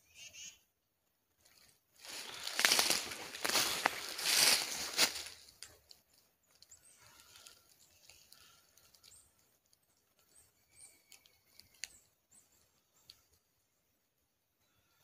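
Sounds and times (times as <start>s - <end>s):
rustling: 1.4s - 6.0s
squirrel chirping and squeaking: 6.6s - 13.3s.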